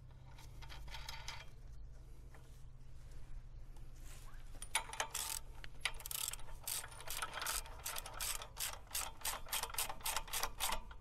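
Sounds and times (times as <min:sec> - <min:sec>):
ratchet wrench clicking: 0:04.7 - 0:11.0.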